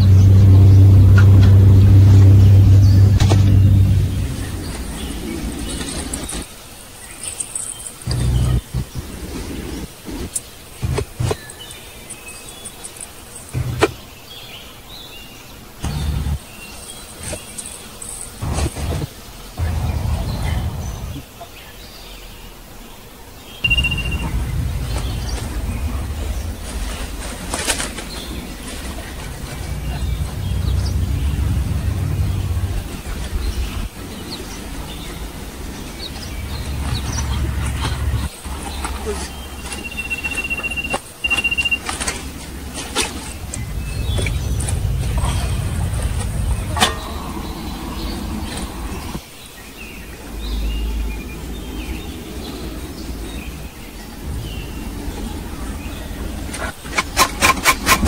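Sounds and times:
birds chirping: 0.0s - 58.0s
wind buffeting microphone: 18.4s - 21.2s, 23.6s - 39.6s, 42.5s - 49.2s.

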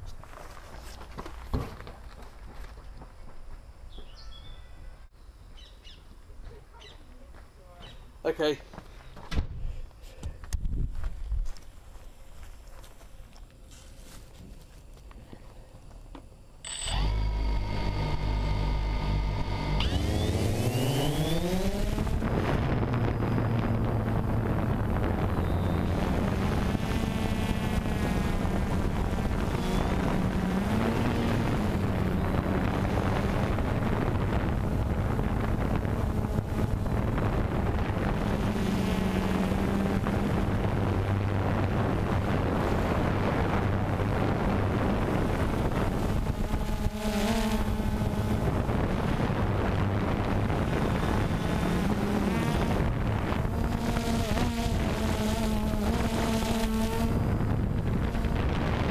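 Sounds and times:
wind noise on microphone: 9.3s - 11.7s, 16.7s - 58.9s
drone motors buzzing: 16.6s - 58.9s.

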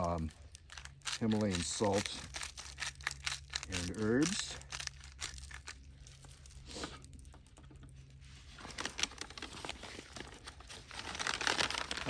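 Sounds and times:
butcher paper rustling: 8.3s - 12.0s.

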